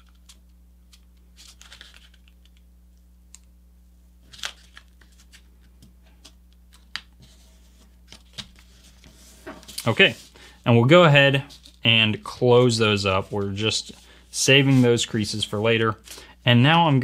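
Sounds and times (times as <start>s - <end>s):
paper folding and crackling: 0.0s - 2.6s, 4.2s - 10.4s, 11.3s - 15.1s.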